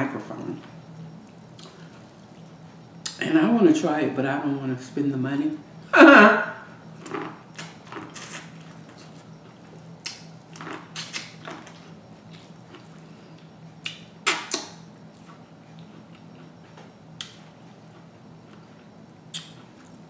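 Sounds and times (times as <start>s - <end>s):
low steady hum: 0.0s - 20.0s
corn cob being chewed: 7.0s - 18.7s
lips smacking and fingers sucked: 13.8s - 14.7s.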